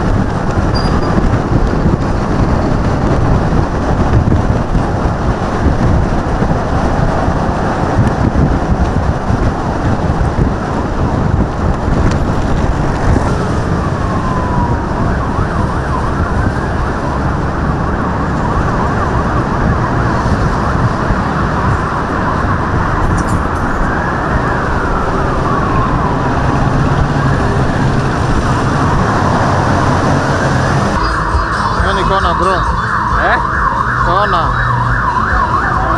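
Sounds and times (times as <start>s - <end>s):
road traffic noise: 0.0s - 35.9s
wind: 0.0s - 35.9s
siren wailing: 13.2s - 35.9s.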